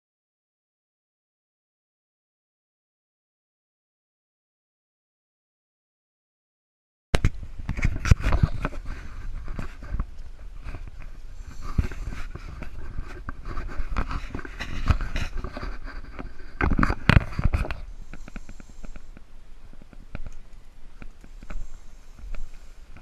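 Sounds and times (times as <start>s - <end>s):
clothing rustling against camera: 7.2s - 20.4s.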